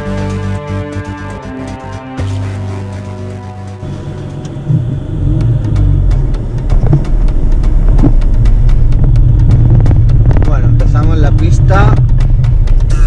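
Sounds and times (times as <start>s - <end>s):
tyres rumbling on dirt track: 4.6s - 12.7s
music jingle: 5.7s - 13.0s.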